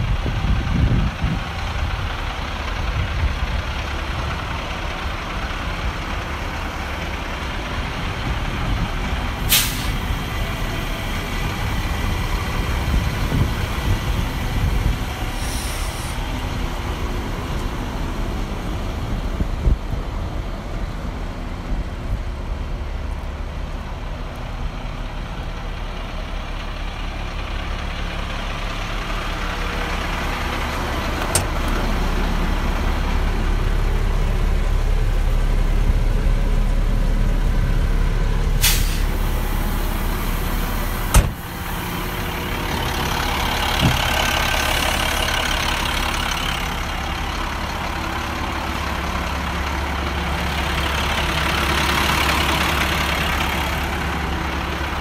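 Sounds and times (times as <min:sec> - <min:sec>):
diesel truck engine idling: 0:00.0 - 0:55.0
hiss: 0:09.5 - 0:10.1, 0:15.2 - 0:16.3, 0:38.6 - 0:42.3.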